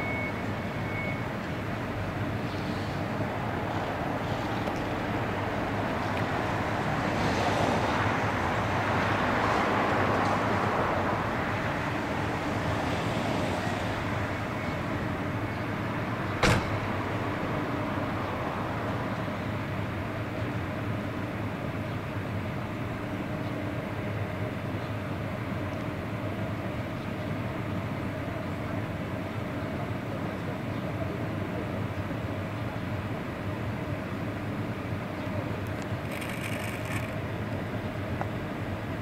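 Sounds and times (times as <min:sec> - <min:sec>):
sharp knock: 0:16.4 - 0:16.9
locomotive equipment whirring: 0:35.6 - 0:37.6.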